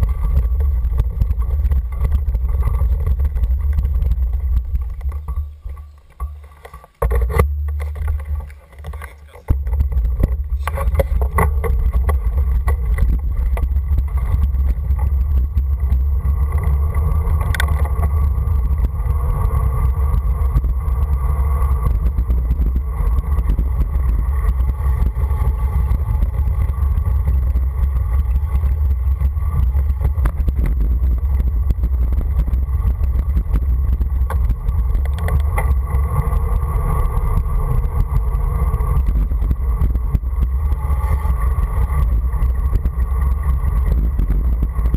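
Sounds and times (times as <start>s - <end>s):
tyres rolling on asphalt: 0.0s - 44.9s
wind buffeting microphone: 9.5s - 44.9s.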